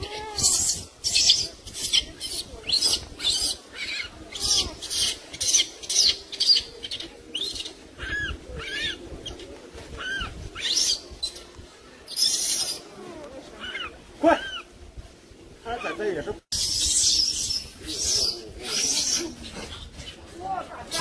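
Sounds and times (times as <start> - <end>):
baby monkey crying: 0.0 - 9.0, 10.0 - 11.0.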